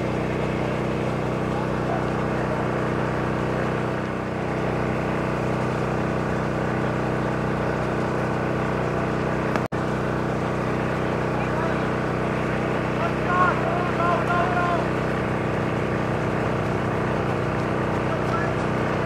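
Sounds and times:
motor humming: 0.0s - 19.0s.

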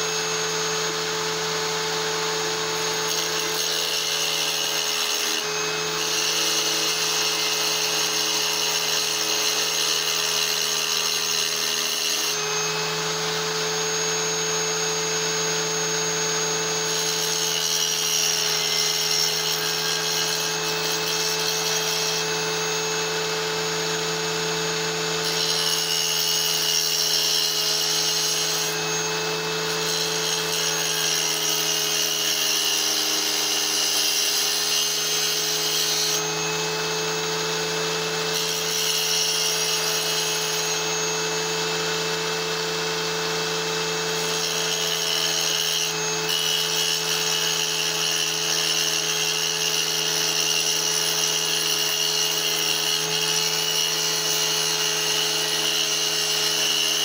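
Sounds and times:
power saw motor humming: 0.0s - 26.8s, 27.5s - 31.4s, 35.3s - 50.0s.

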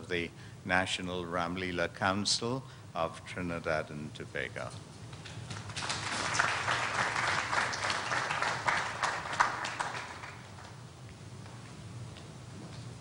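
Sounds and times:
audience applauding: 5.5s - 10.8s.

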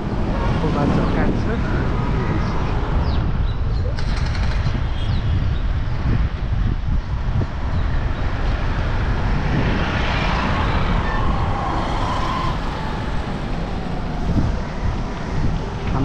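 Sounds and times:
wind rumble on microphone: 0.0s - 16.0s
vehicle passing close: 8.0s - 16.0s.

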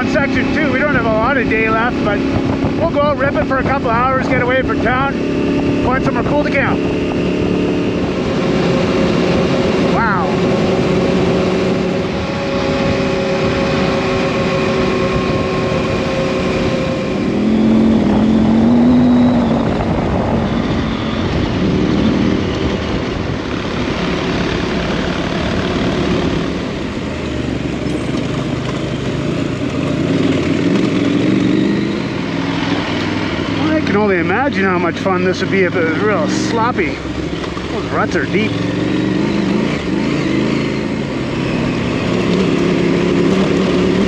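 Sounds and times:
motorcycle engine revving: 0.0s - 44.0s
wind rushing: 0.8s - 26.8s.

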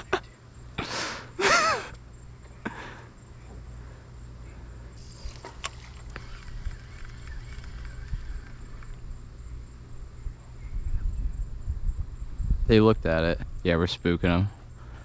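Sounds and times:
low steady hum: 0.0s - 15.0s
faint clicks: 5.0s - 9.0s.

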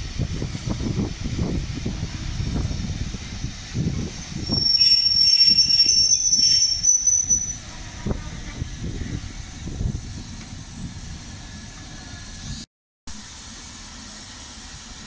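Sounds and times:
train rumbling: 0.0s - 15.0s
high-pitched wheel squeal: 4.2s - 7.7s.

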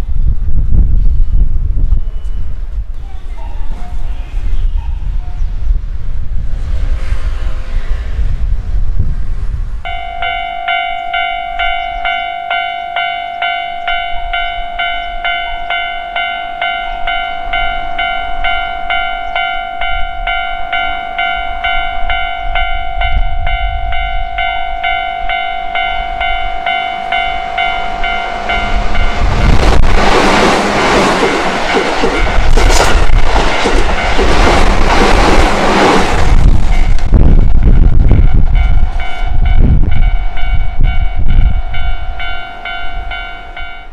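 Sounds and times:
wheels rushing on rails: 0.4s - 43.9s
electric train passing: 6.1s - 43.9s
railway warning bell ringing: 9.8s - 34.8s, 36.4s - 43.9s.

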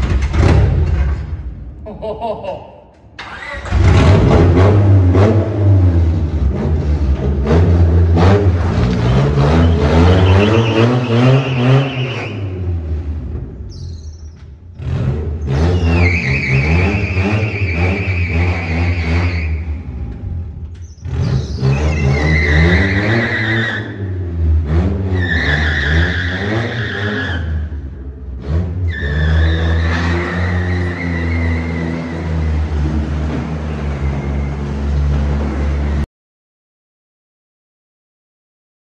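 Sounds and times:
car engine revving: 3.2s - 36.0s
tyres squealing on concrete: 9.5s - 12.6s, 15.5s - 19.8s, 20.9s - 24.1s, 25.1s - 27.7s, 28.9s - 32.5s.

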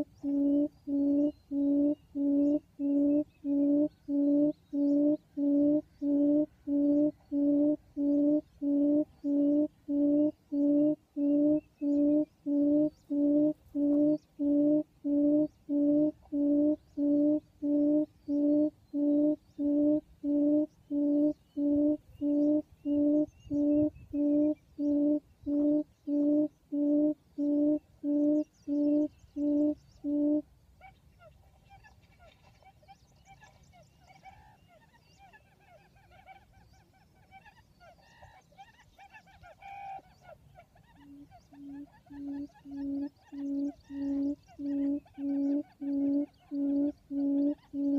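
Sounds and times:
birds chattering: 0.0s - 26.8s, 31.0s - 47.9s
loud low hoot: 0.0s - 30.4s, 41.5s - 47.9s
recorded quail call through phone: 0.0s - 47.9s.

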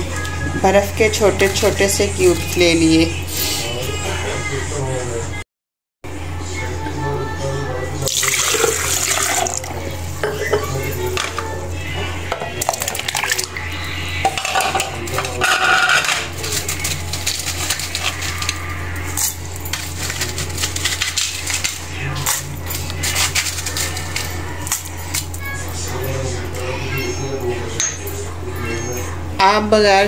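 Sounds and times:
kitchenware clinking and knocking: 10.2s - 13.5s, 14.2s - 25.4s.

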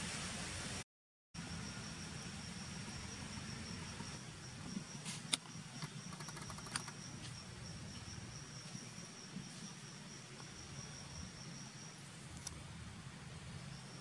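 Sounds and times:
insects high-pitched drone: 1.4s - 14.0s
sharp clicks and ticks: 5.3s - 7.0s.

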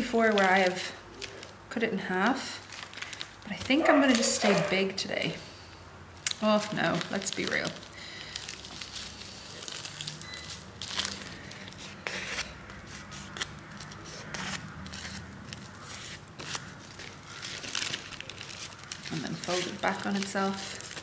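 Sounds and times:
seaweed sheet crackling: 2.6s - 4.4s, 6.2s - 12.2s, 14.9s - 21.0s.

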